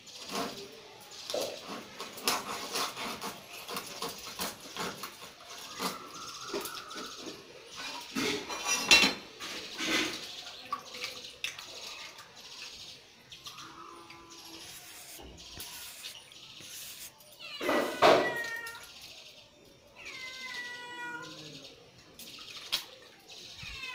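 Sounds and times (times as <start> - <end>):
knife scraping and tapping fish: 1.3 - 7.4.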